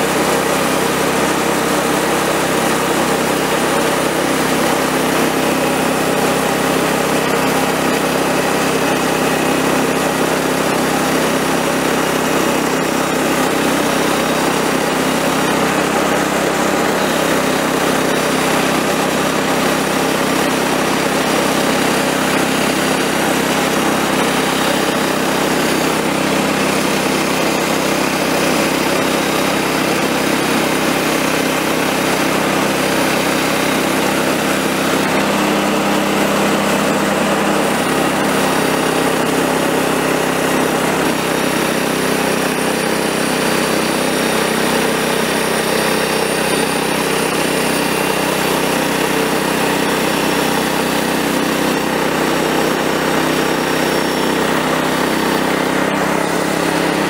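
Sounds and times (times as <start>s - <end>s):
band saw cutting log: 0.0s - 57.0s
small gas engine running: 0.0s - 57.0s.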